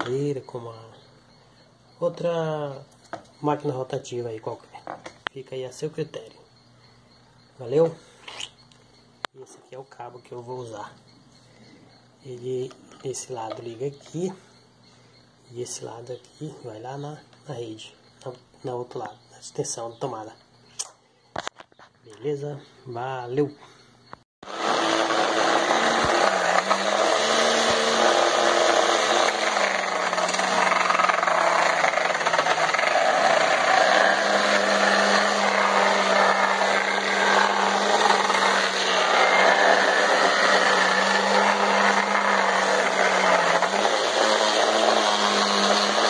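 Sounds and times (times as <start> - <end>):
blender motor whining: 24.4 - 46.0.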